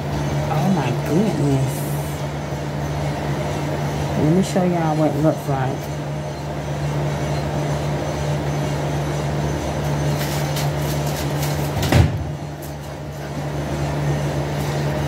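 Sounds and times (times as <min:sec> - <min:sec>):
electric fan motor hum: 0:00.0 - 0:15.0.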